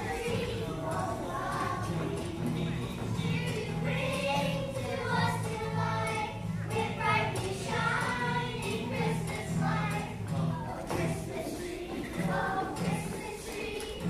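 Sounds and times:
children's choir singing: 0.0s - 14.0s.

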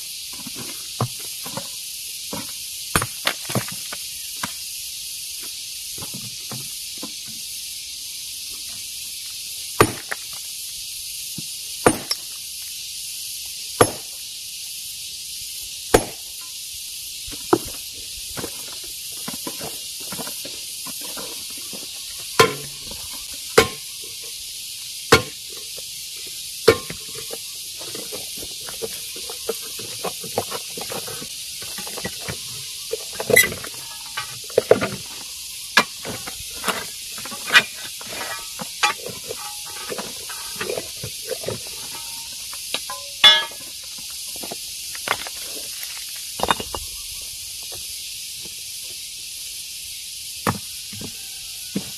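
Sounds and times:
steady high hiss: 0.0s - 51.7s
hammer striking stone: 3.0s - 3.2s, 9.8s - 10.1s, 11.8s - 12.2s, 13.8s - 14.1s, 15.9s - 16.2s, 22.4s - 22.8s, 23.6s - 23.8s, 25.1s - 25.4s, 26.7s - 27.0s, 42.8s - 43.6s.

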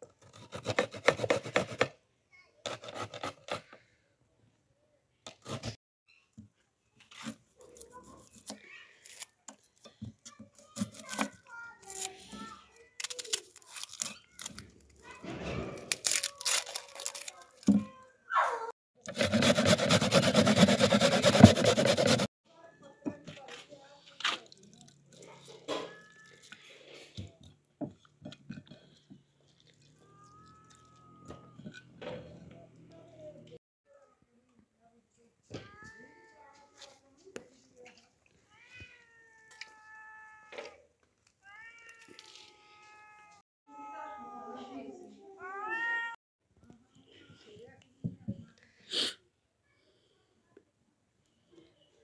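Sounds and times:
knife peeling onion skin: 13.0s - 14.7s, 15.9s - 17.7s
hands squeezing wet vegetable: 13.0s - 15.0s, 16.0s - 17.6s, 24.4s - 25.5s, 41.2s - 42.7s.

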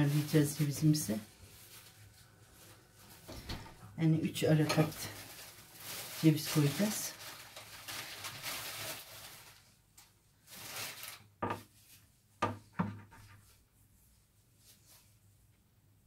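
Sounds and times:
nuts sprinkled rustling: 4.8s - 9.7s.

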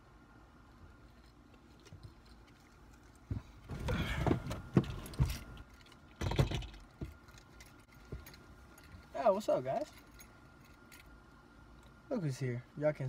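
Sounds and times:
rustling and knocks: 3.2s - 9.1s.

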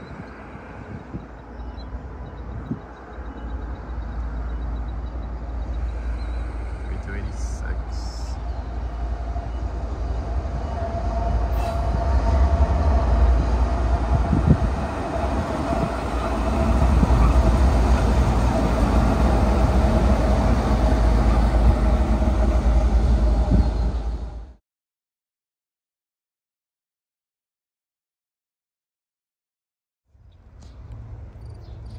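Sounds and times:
diesel locomotive engine rumble: 0.0s - 24.6s, 30.2s - 31.9s.

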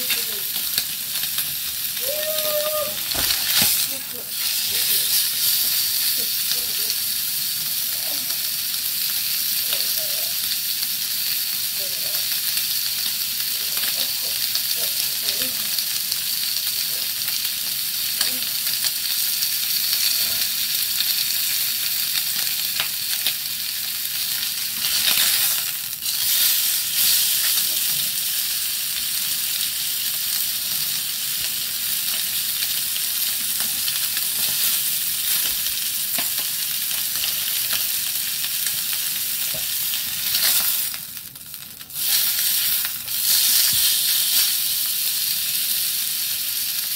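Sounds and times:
steak sizzling in a metal pot: 0.0s - 46.9s.

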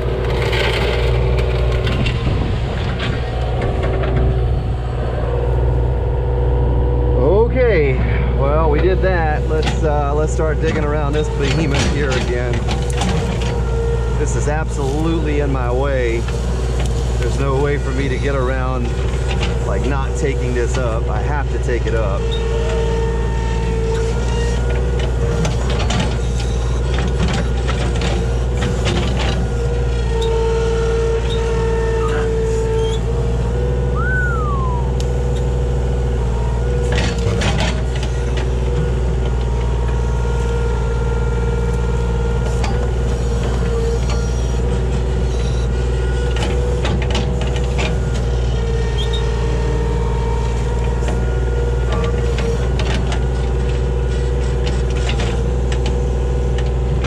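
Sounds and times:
excavator diesel engine running: 0.0s - 57.0s
bucket clanking and scraping: 8.1s - 13.6s.

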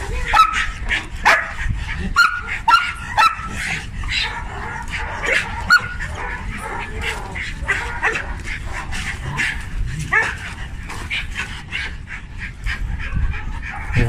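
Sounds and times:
dog barking and yipping: 0.2s - 10.5s.

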